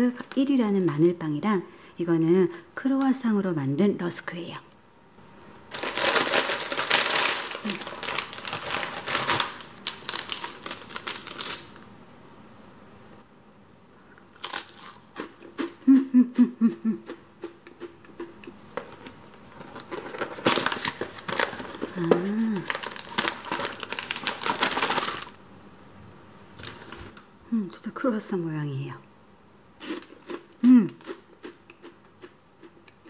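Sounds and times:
plastic wrappers crinkling: 0.0 - 1.0, 5.6 - 11.8, 14.4 - 15.0, 18.8 - 25.4, 26.6 - 27.2
crunching dry rusk: 5.7 - 11.7.

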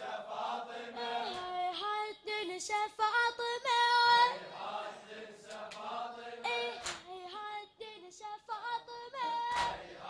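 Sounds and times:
boy singing lament: 6.5 - 7.4
chest beating slaps: 6.8 - 7.1, 9.5 - 9.8.

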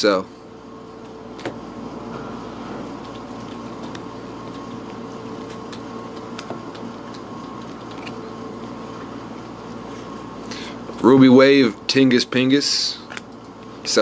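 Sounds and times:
room hum: 0.0 - 14.0.

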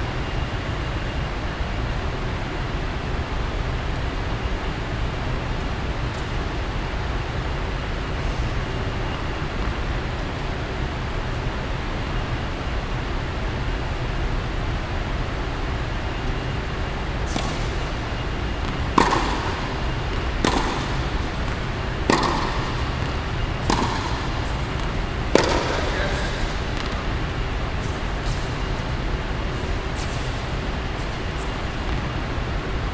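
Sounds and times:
low background hum: 0.0 - 32.9
tennis balls struck by racket: 17.2 - 18.0, 18.6 - 27.2.

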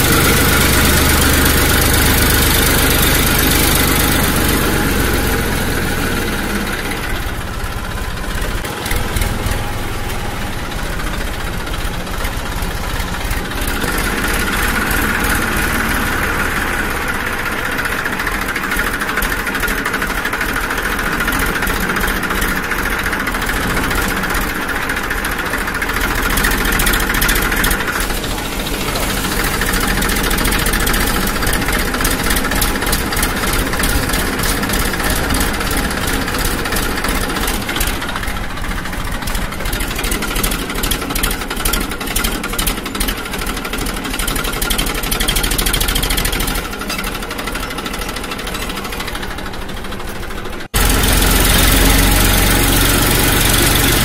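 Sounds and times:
motor-like drone: 23.4 - 40.3, 50.8 - 54.0.

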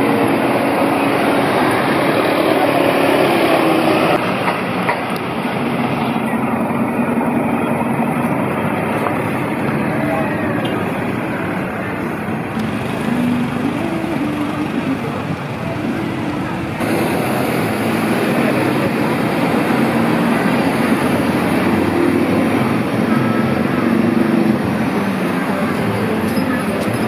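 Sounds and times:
city street traffic: 0.0 - 27.0.

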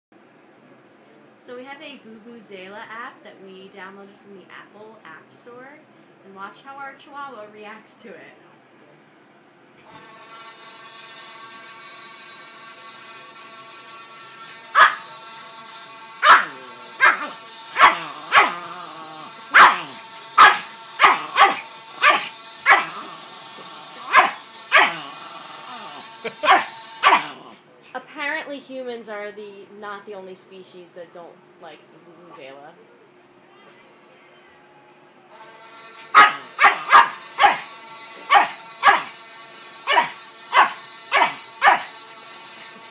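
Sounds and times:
small dog barking: 14.8 - 15.1, 16.2 - 18.6, 19.5 - 23.1, 24.0 - 25.0, 26.3 - 27.5, 36.1 - 37.7, 38.3 - 39.2, 39.9 - 42.0.

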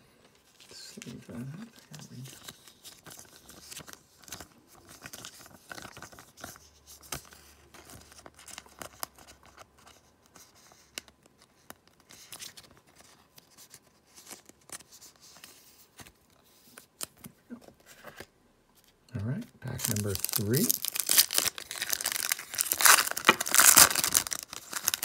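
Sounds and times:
plastic sleeve crinkling: 19.6 - 25.0.

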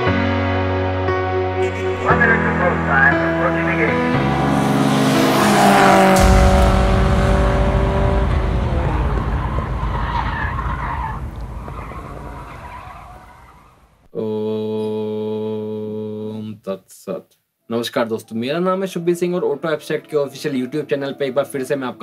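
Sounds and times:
deep held tone: 3.9 - 9.9
deep rumbling hit: 3.9 - 14.0
whoosh: 4.0 - 14.0.

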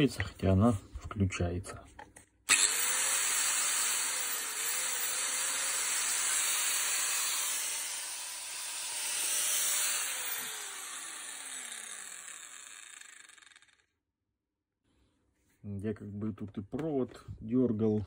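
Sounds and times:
angle grinder whirring: 2.5 - 13.9.

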